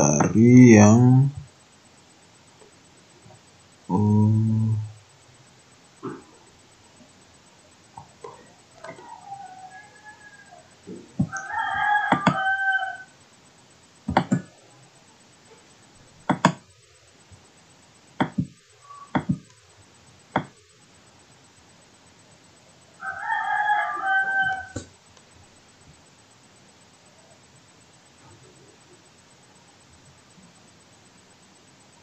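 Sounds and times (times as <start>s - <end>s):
sharp clicks: 14.0s - 14.5s.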